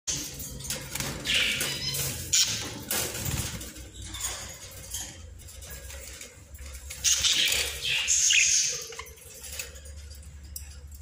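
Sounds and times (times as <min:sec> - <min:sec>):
budgerigars chattering: 0:01.2 - 0:02.8, 0:07.0 - 0:09.2.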